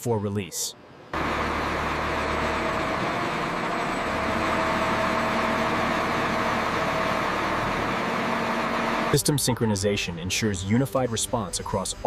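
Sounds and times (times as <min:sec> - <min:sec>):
machine hum: 0:00.9 - 0:12.0.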